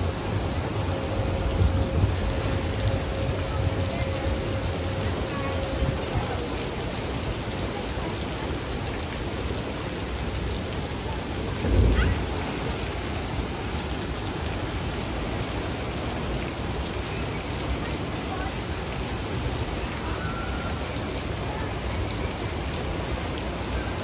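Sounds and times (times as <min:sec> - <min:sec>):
water splashing: 0:00.0 - 0:24.0.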